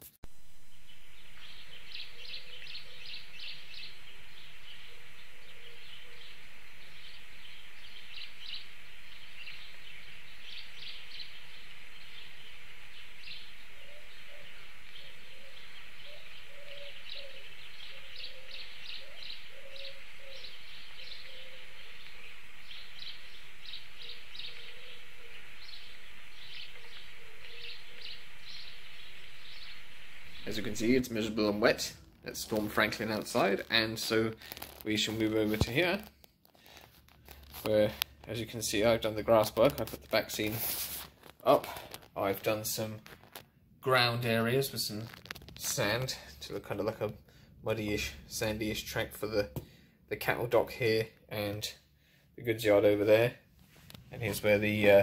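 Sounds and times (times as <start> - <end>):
steady hiss: 0.0 - 55.0
small birds chirping: 0.4 - 49.5
dove cooing: 13.3 - 22.8, 23.4 - 31.0.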